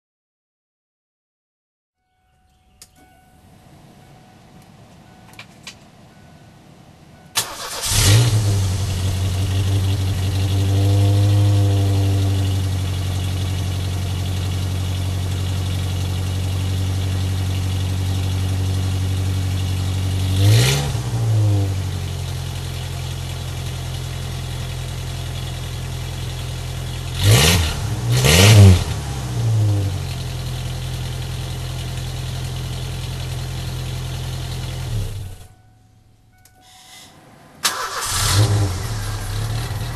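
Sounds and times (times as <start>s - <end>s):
car engine idling and revving: 3.4s - 39.9s.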